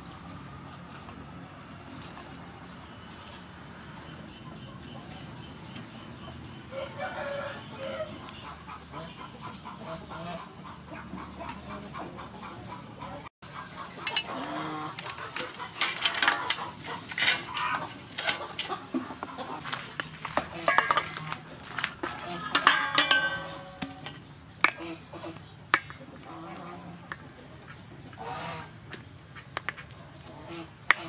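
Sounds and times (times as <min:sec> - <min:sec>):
metal cookware clinking: 0:14.0 - 0:18.8, 0:20.3 - 0:21.4, 0:22.0 - 0:24.8.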